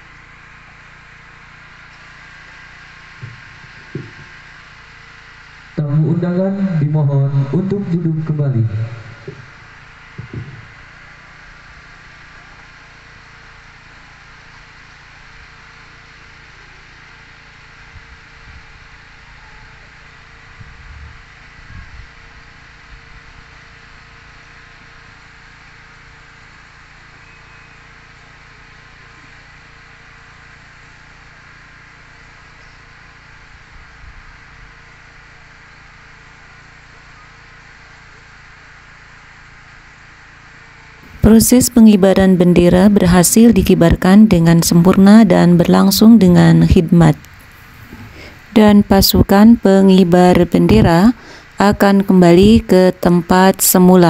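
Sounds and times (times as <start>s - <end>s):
faint buzzing hum: 0.0s - 13.6s, 40.4s - 54.0s
outdoor background hiss: 0.0s - 54.0s
soft low bumps: 3.2s - 4.3s, 10.2s - 10.8s.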